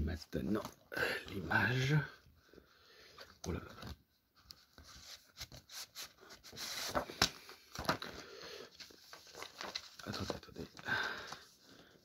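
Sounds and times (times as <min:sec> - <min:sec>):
paper rustling: 0:03.2 - 0:12.0.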